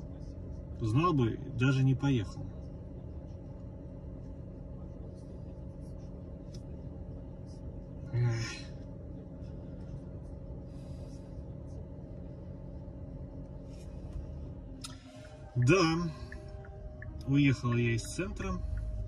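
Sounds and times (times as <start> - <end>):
low hum inside a car: 0.0 - 19.0.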